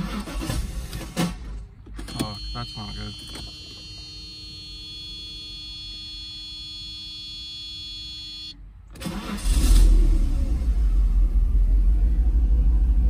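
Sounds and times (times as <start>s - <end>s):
car warning buzzer tone: 2.0s - 8.6s
loud low rumble: 9.6s - 13.0s.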